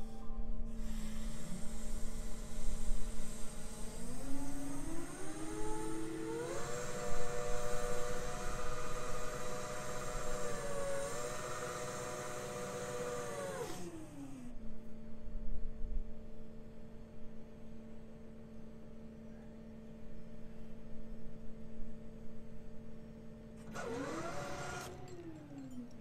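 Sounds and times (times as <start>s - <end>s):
truck engine and hydraulic pump whine: 0.0s - 15.3s, 21.6s - 26.0s.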